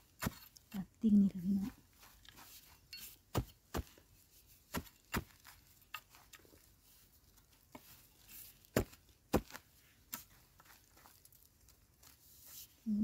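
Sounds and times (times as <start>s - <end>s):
metal tool striking stony soil: 0.0s - 0.8s, 2.6s - 6.5s, 8.2s - 10.4s
earth scraping and crumbling: 1.6s - 12.7s.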